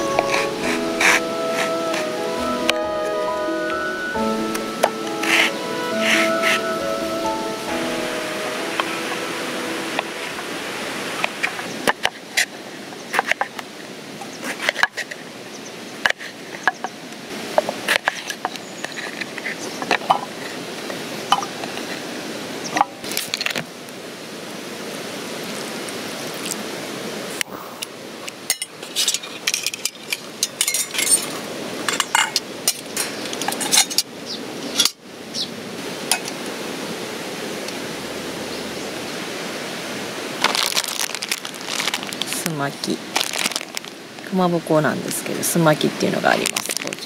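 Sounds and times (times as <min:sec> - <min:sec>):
steady background hiss: 0:00.0 - 0:47.0
metal pot clinking: 0:28.5 - 0:31.3.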